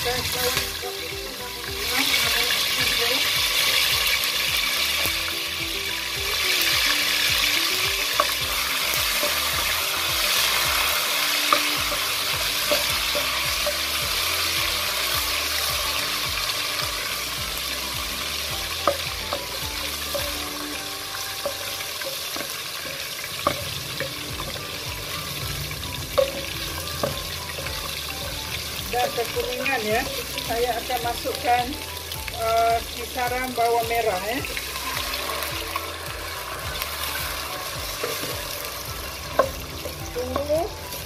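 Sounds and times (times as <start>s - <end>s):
onions sizzling in hot oil: 0.0s - 41.0s
wooden spoon knocking on pot: 18.4s - 30.5s, 35.6s - 40.7s.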